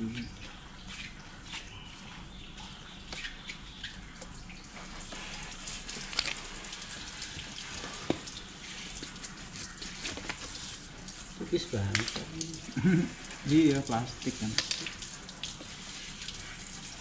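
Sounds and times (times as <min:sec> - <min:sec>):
water running and splashing: 0:00.0 - 0:17.0
small objects clicking and knocking: 0:06.0 - 0:06.4, 0:14.5 - 0:14.9.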